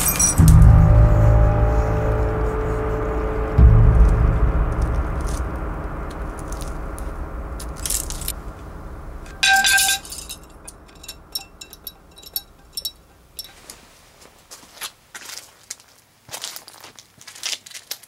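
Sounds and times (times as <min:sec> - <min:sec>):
broken glass tinkling: 0:00.0 - 0:00.5, 0:09.3 - 0:13.7
loud ringing burst: 0:00.0 - 0:13.5
low steady hum: 0:00.0 - 0:14.5.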